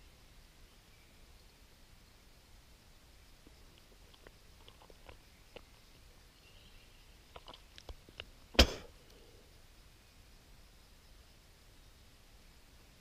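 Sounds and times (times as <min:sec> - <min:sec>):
sharp loud knock: 0:08.6 - 0:08.9.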